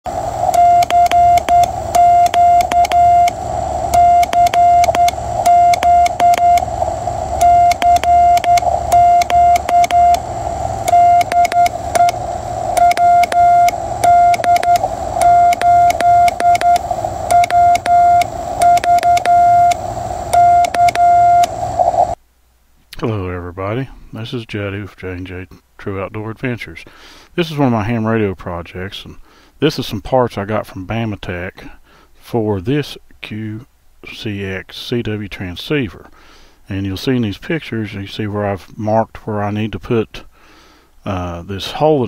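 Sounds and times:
morse code beeping tone: 0.4 - 21.7
key clicks: 0.8 - 3.4, 4.0 - 6.7, 7.4 - 10.2, 10.9 - 12.2, 12.8 - 21.5.

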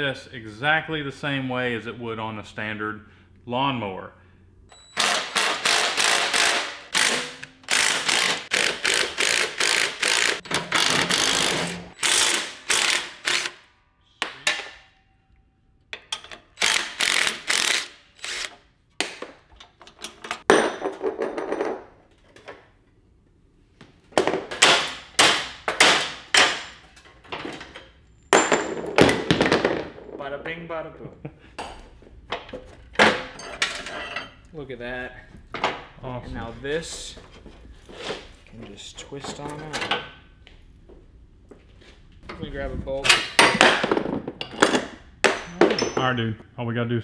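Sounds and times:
impact driver hammering bolts: 5.0 - 13.6.

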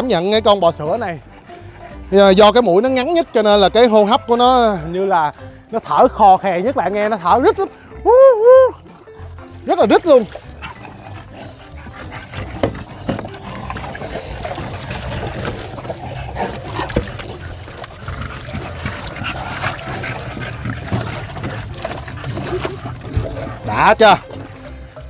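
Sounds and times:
puppies wheezing and snorting: 1.0 - 4.4, 8.7 - 25.0
water splashing in a tub: 9.7 - 25.0.

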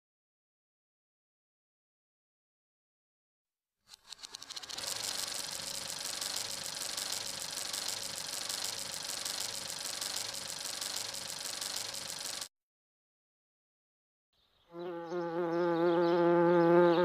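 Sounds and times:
fast mechanical rattle: 3.9 - 12.5.

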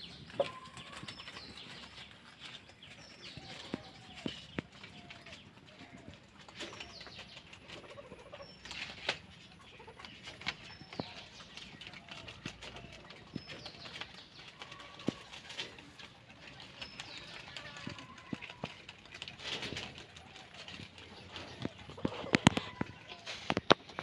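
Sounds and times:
animals chewing leaves: 0.0 - 24.0
leaf rustling: 6.4 - 24.0.

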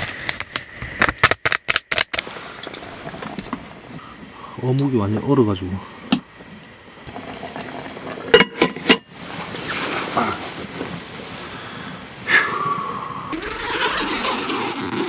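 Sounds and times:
lid set on cook pot: 8.3 - 9.1.

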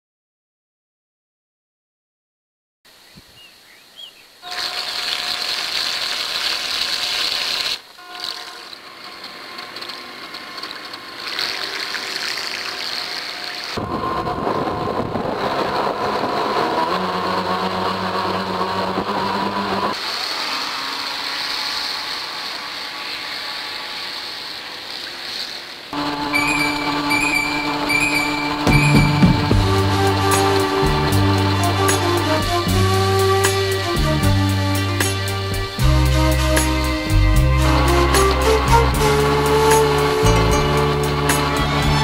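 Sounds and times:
electric motors whining: 13.6 - 42.0.

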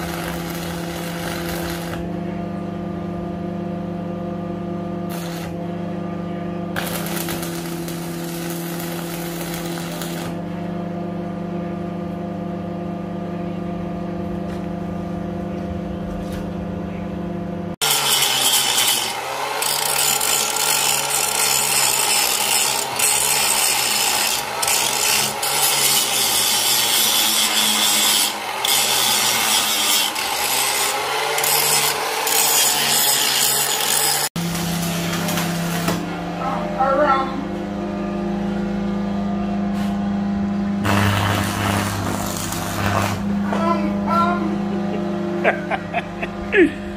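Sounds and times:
welding arc crackle: 0.0 - 2.0, 5.1 - 5.6, 6.8 - 10.4, 17.8 - 36.0, 40.8 - 43.3
electrical hum: 0.0 - 32.2, 34.3 - 46.9
angle grinder grinding steel: 6.8 - 10.4, 17.8 - 36.0, 40.8 - 43.6.

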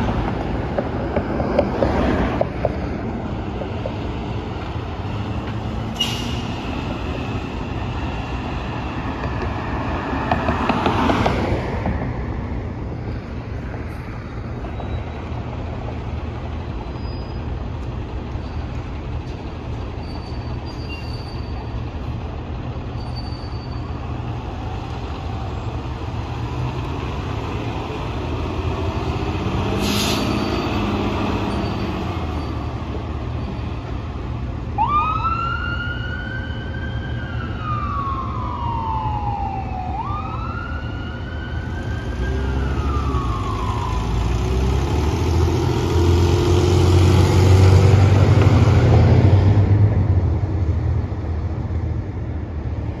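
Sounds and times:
road noise: 0.0 - 53.0
wail siren: 34.8 - 44.4.

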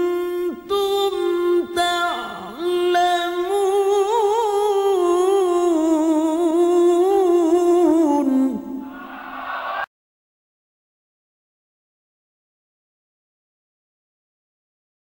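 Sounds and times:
man reciting melodically: 0.0 - 8.9.

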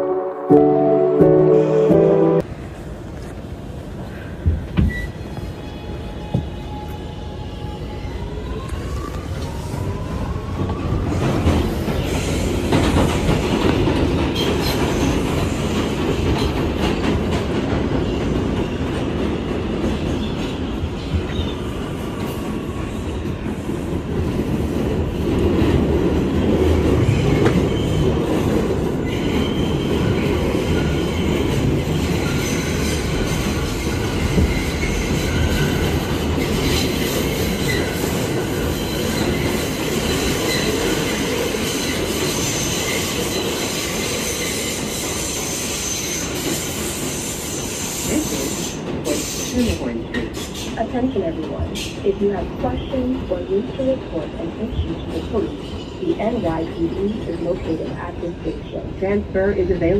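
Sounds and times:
train wheels rumbling on rail: 2.8 - 59.9.

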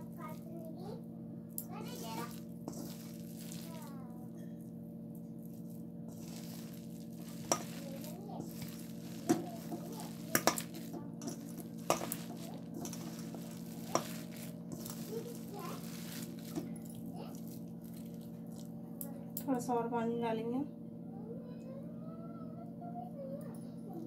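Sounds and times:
steady low hum: 0.0 - 24.0
wet rustling stir: 1.6 - 19.1
clinks against metal bowl: 6.1 - 18.3.

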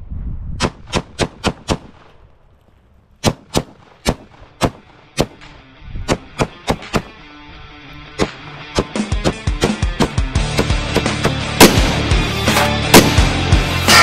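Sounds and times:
rifle shots: 0.6 - 2.2, 3.2 - 7.2, 8.2 - 14.0
rock music: 5.0 - 14.0.

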